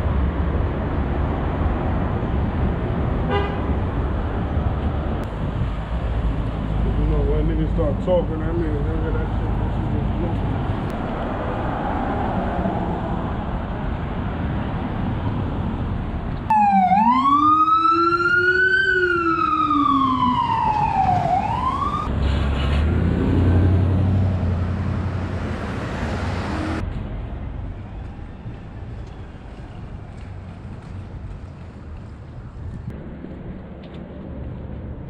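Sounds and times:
street traffic noise: 0.0 - 35.0
emergency siren wailing: 16.5 - 22.1.

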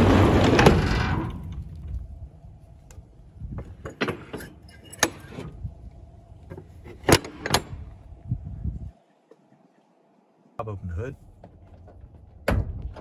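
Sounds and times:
low rumble: 0.0 - 3.8.

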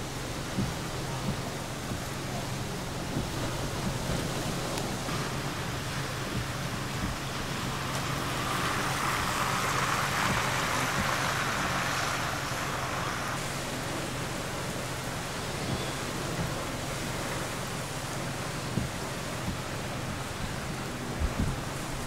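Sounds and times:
storm rain and wind rushing: 0.0 - 22.0.

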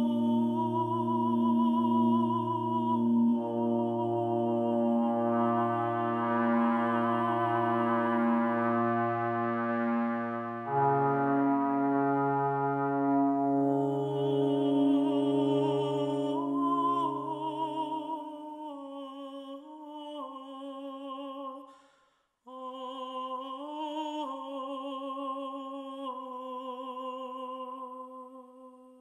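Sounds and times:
high voice singing wordless notes: 0.0 - 21.8, 22.5 - 29.0
low brass note: 4.9 - 17.8.

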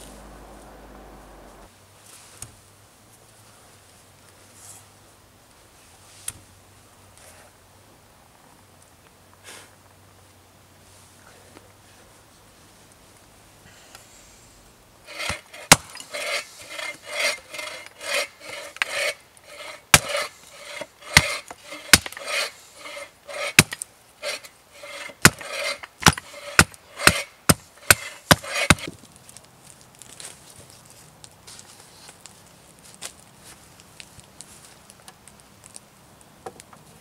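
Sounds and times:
hatchet rasping on wood: 15.1 - 28.9.

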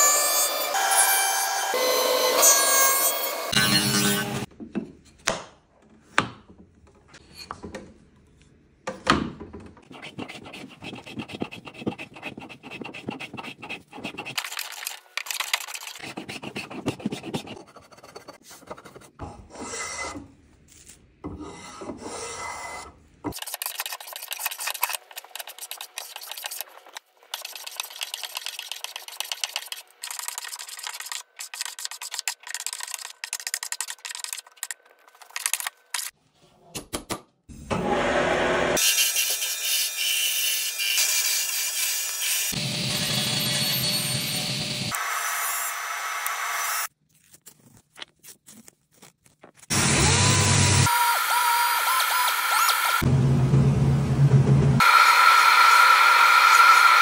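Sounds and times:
spokeshave rasping on wood: 9.9 - 14.4.

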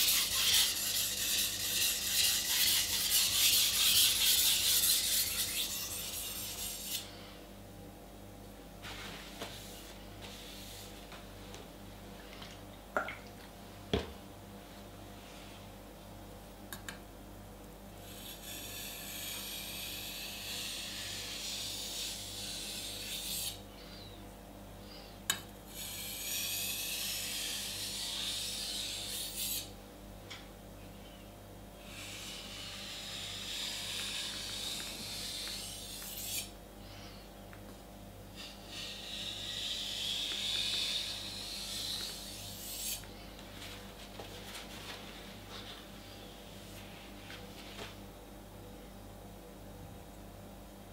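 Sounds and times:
knife grinding on whetstone: 0.0 - 7.1, 18.0 - 23.6, 25.7 - 29.7, 31.9 - 36.5, 38.4 - 43.1.

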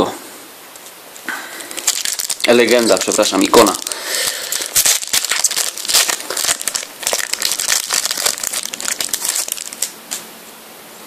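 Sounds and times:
foil packet crinkling: 1.6 - 10.2.

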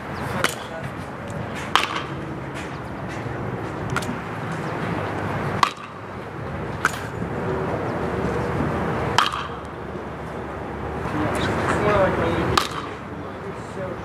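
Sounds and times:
outdoor background noise: 0.0 - 14.0
metal bat pinging balls: 0.3 - 6.1, 6.8 - 7.2, 9.1 - 9.8, 12.5 - 13.0.

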